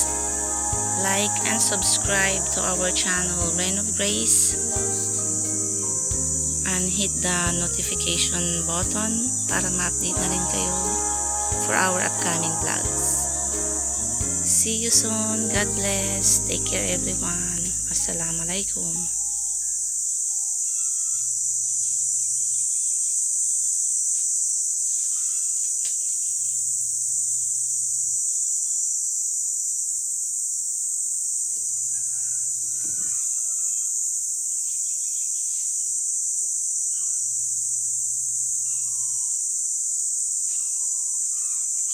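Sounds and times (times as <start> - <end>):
faint chirps and calls: 0.0 - 23.2, 38.5 - 39.6, 40.4 - 41.9
insect chorus trilling: 0.0 - 41.9.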